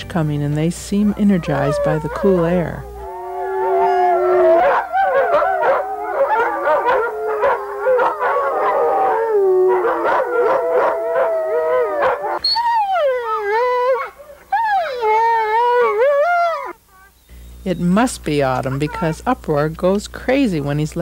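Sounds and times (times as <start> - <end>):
dogs howling: 1.1 - 17.3, 18.0 - 19.2
dog yelps: 1.4 - 8.9, 12.0 - 17.2.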